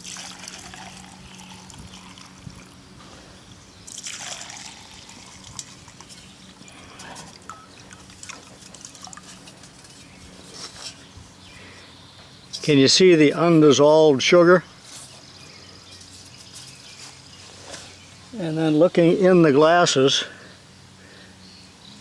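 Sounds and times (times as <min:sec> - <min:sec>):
liquid pouring into a glass: 0:00.0 - 0:02.7, 0:03.9 - 0:06.2.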